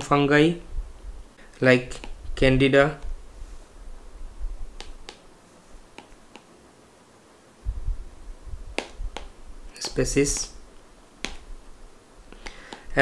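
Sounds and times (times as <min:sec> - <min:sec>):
stylus tapping on screen: 0:01.9 - 0:02.2, 0:04.8 - 0:05.3, 0:05.9 - 0:06.5, 0:08.7 - 0:10.6, 0:11.2 - 0:11.5, 0:12.4 - 0:12.9.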